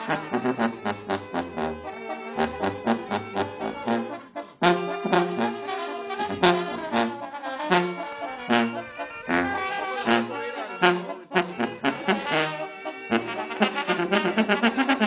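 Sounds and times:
alternating bass line: 0:00.0 - 0:07.2
trombones and trumpets: 0:00.0 - 0:15.0.

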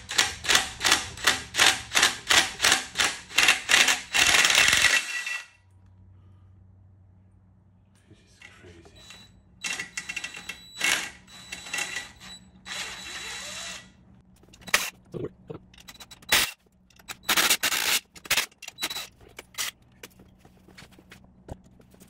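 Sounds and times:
cordless power tool spinning bolts: 0:00.0 - 0:05.5, 0:09.6 - 0:13.9, 0:15.8 - 0:19.7.

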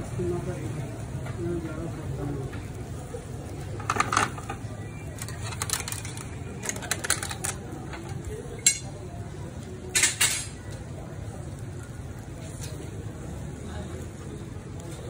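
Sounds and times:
metal skewers clinking on grill: 0:03.8 - 0:09.1, 0:09.8 - 0:10.7.

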